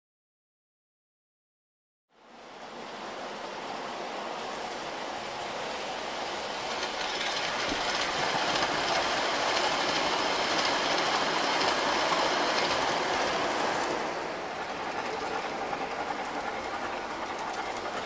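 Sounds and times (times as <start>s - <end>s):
model train rolling on track: 2.2s - 18.0s
wheels clicking over rails: 3.7s - 18.0s.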